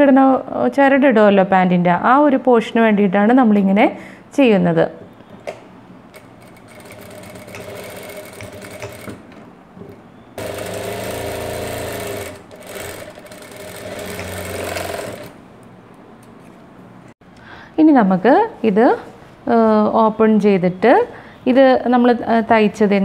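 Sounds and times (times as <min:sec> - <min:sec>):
sewing machine stitching: 0:06.1 - 0:09.4, 0:10.4 - 0:15.4.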